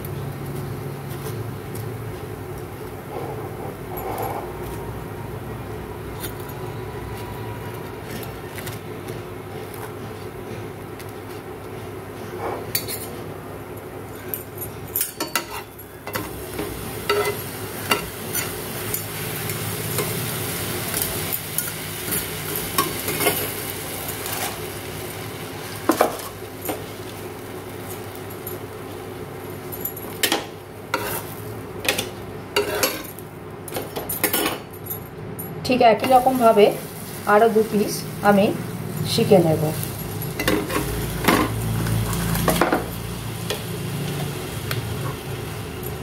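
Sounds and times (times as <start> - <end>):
bread sizzling in butter: 16.3 - 31.6, 39.8 - 46.0
spatula scraping a pan: 30.9 - 32.0, 32.6 - 33.1.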